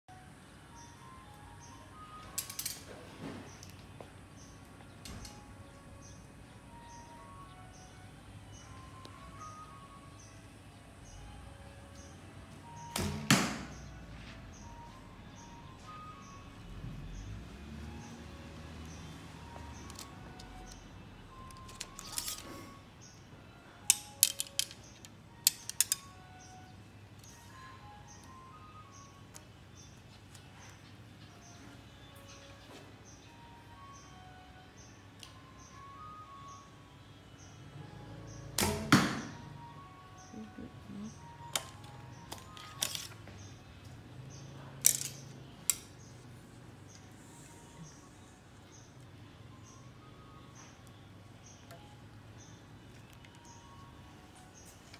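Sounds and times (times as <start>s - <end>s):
faint music: 0.1s - 54.9s
arrow striking target: 13.0s - 13.7s, 38.6s - 39.4s.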